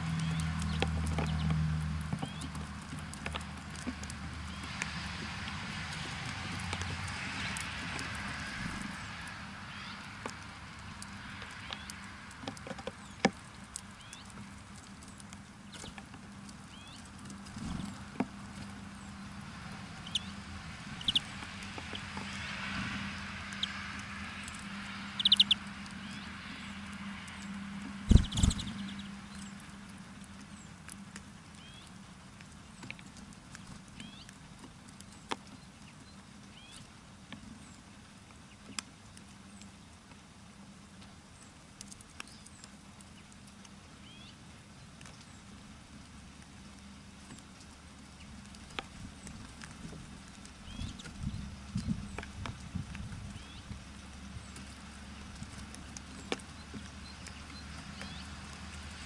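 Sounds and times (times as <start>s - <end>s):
small birds chirping: 0.0s - 8.3s, 8.9s - 40.2s, 40.9s - 59.0s
beaks tapping on feeder: 0.2s - 8.3s, 20.0s - 29.7s, 54.4s - 59.0s.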